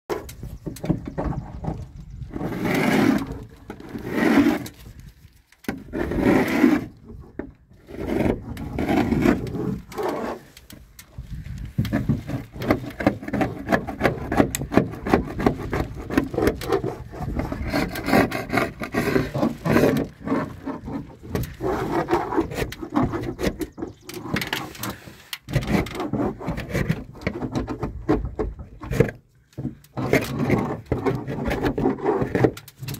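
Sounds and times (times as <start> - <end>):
paint scraper on wooden door: 11.8 - 32.6.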